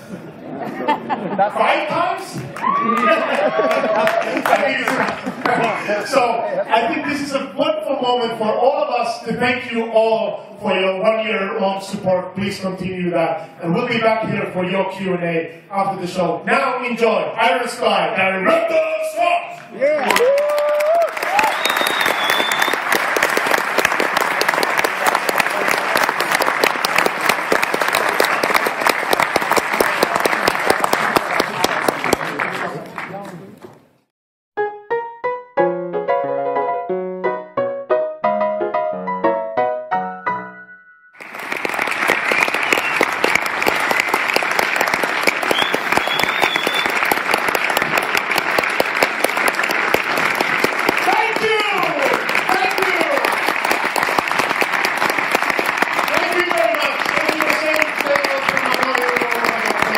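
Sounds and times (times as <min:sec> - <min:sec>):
audience applauding: 0:02.4 - 0:06.3, 0:19.7 - 0:33.6, 0:41.2 - 0:59.9
piano notes: 0:34.6 - 0:41.1.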